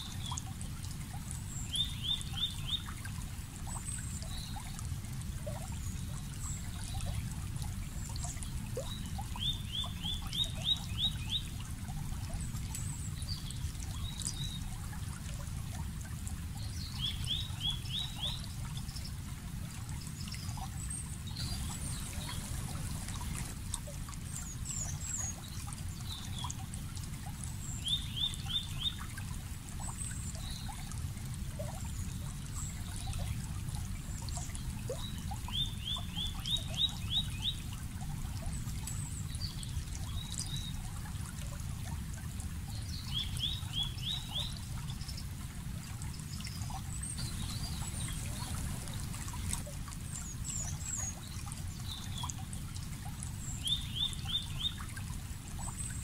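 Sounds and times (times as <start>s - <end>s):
stream running: 0.0s - 56.0s
bird song of quick notes: 21.2s - 23.6s, 46.9s - 52.4s
high bird chirps: 21.4s - 23.5s, 47.2s - 49.6s.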